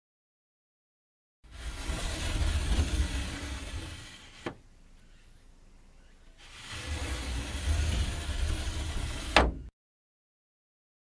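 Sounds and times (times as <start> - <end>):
paper screen sliding in groove: 1.5 - 4.6, 6.4 - 9.6.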